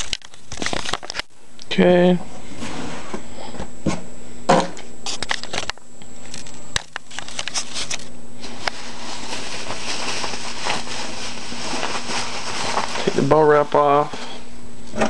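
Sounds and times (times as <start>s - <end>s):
bubble wrap crinkling: 0.0s - 1.3s, 6.2s - 13.8s.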